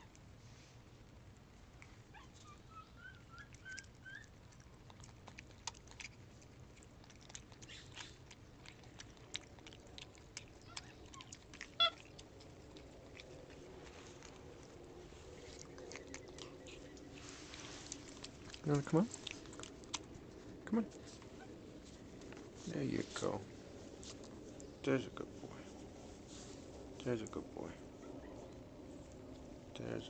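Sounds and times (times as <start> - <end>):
monkey chewing wet clicks: 3.2 - 22.5.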